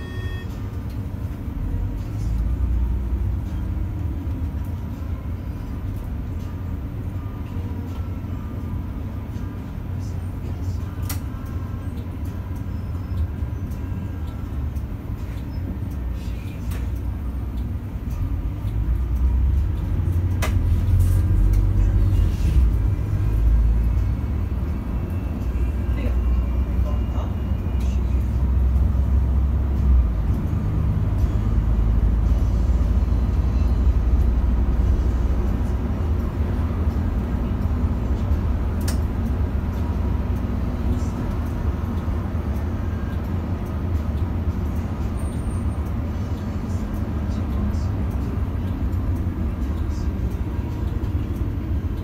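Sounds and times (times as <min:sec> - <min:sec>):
bus engine and road rumble: 0:00.0 - 0:52.0.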